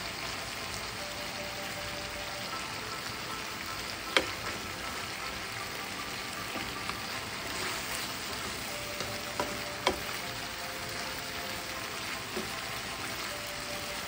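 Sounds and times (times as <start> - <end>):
stew simmering and bubbling: 0.0 - 14.0
spatula stirring in pan: 2.9 - 14.0
spatula clicking against pan: 9.0 - 10.2.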